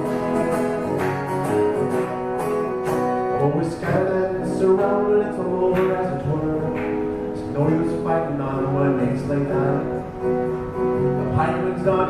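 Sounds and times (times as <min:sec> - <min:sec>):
acoustic guitar strumming: 0:00.0 - 0:12.0
man singing country song: 0:03.2 - 0:12.0.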